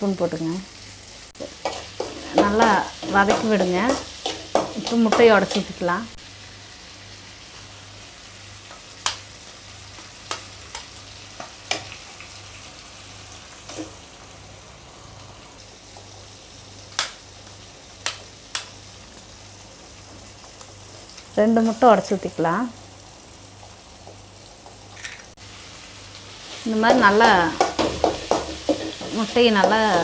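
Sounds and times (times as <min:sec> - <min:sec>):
masala sizzling in a pan: 0:00.0 - 0:30.0
spatula tapping on a pan: 0:01.6 - 0:05.3, 0:27.4 - 0:30.0.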